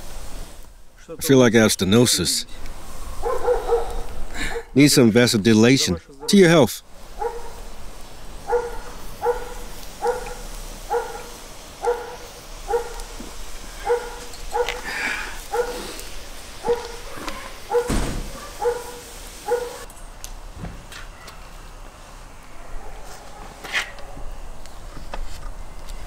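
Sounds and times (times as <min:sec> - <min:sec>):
dog barking: 0:03.2 - 0:04.7, 0:07.2 - 0:07.6, 0:08.4 - 0:13.2, 0:13.8 - 0:14.8, 0:15.5 - 0:15.9, 0:16.6 - 0:19.9, 0:22.6 - 0:23.6
brief thump: 0:17.9 - 0:18.4, 0:20.6 - 0:21.0.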